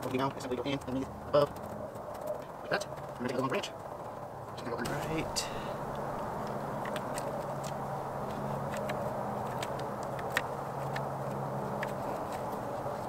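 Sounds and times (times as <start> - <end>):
twigs clicking and snapping: 0.0 - 4.2, 4.8 - 13.0
steady low hum: 4.3 - 13.0.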